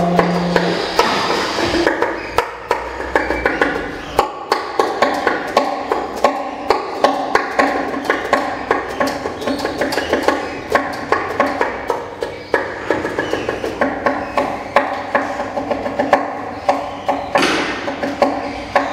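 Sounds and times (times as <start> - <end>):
faint pitched tones: 0.0 - 4.2
sharp clicks and knocks: 0.0 - 18.9.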